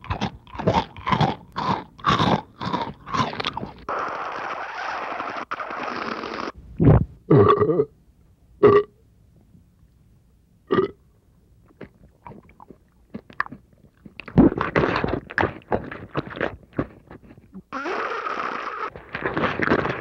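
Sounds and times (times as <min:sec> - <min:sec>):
cereal crunching and chewing: 0:00.0 - 0:04.5, 0:11.7 - 0:17.7, 0:18.9 - 0:20.0
throaty burp-like sound: 0:07.3 - 0:07.9, 0:08.6 - 0:08.9, 0:10.7 - 0:11.0.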